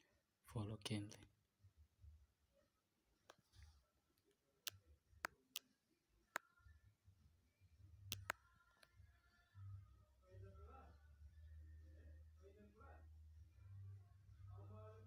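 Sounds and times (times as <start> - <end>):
smartphone clicks: 8.1 - 8.4.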